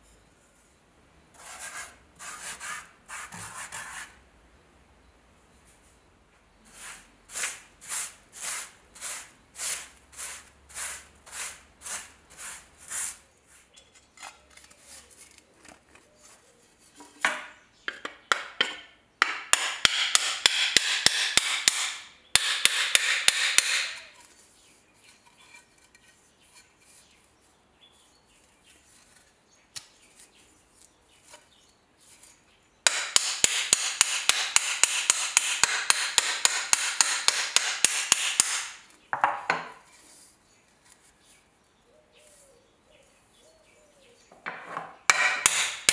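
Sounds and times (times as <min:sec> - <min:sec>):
small hammer tapping: 0:17.3 - 0:24.1, 0:32.9 - 0:39.4, 0:45.1 - 0:45.9.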